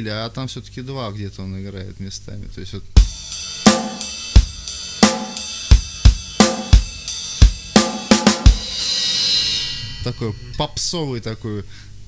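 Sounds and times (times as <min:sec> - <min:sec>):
drum kit playing rock beat: 0:03.0 - 0:10.4
cymbal crash: 0:03.0 - 0:10.9.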